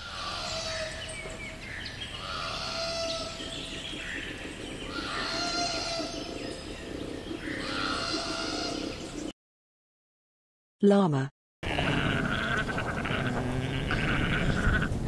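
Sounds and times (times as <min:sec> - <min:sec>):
birds chirping: 0:00.0 - 0:09.3, 0:11.6 - 0:15.0
koala bellowing: 0:11.6 - 0:15.0.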